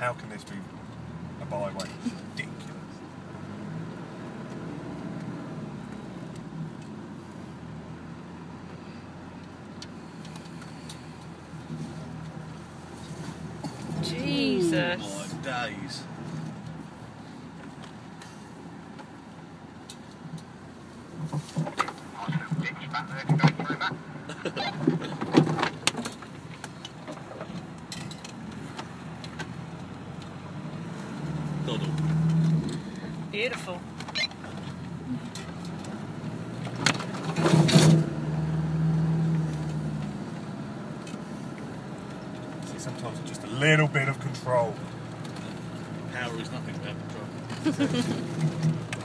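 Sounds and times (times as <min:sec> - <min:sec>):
vehicle engine at low revs: 0:00.0 - 0:49.0.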